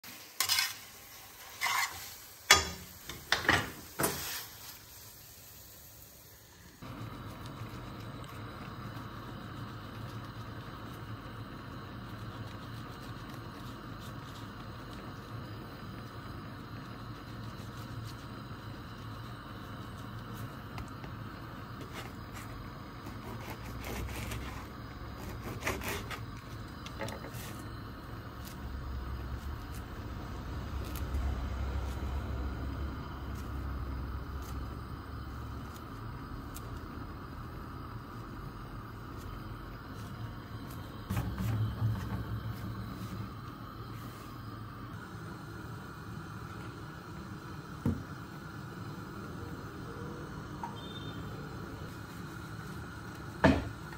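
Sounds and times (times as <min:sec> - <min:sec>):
low hiss: 0:00.0 - 0:23.4
tongs scraping a frying pan: 0:00.1 - 0:05.1.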